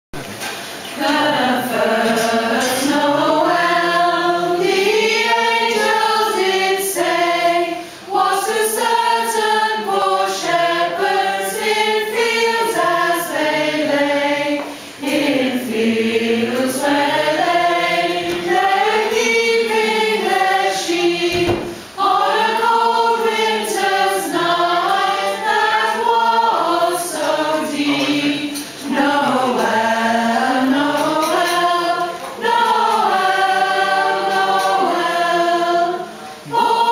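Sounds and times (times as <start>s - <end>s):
women's choir singing: 0.8s - 36.9s.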